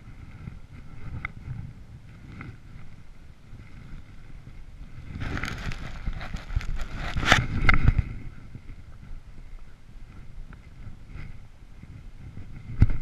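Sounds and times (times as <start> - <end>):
jacket fabric rustling and scraping: 5.0 - 7.9.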